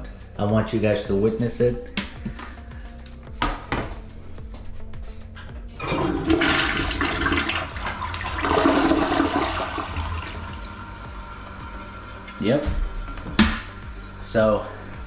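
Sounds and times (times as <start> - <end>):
toilet flushing: 5.8 - 13.2.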